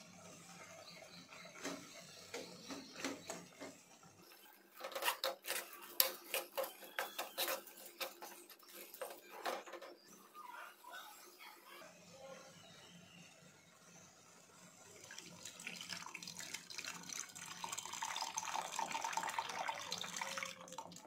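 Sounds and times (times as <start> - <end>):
ladle scraping and knocking pot: 4.8 - 10.0.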